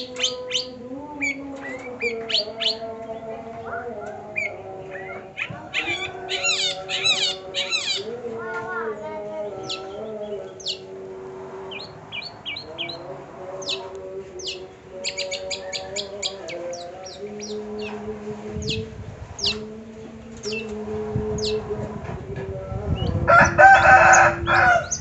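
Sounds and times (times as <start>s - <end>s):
bird chirping: 0.0s - 8.2s, 9.4s - 11.0s, 11.7s - 19.7s, 20.4s - 20.8s, 24.8s - 25.0s.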